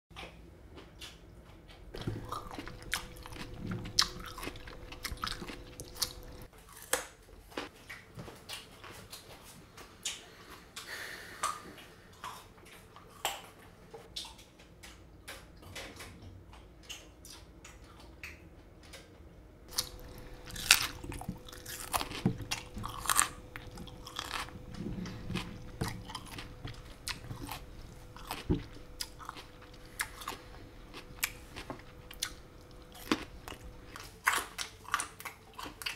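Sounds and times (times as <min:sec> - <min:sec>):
person chewing crunchy cereal: 0:02.0 - 0:09.2, 0:19.7 - 0:35.9.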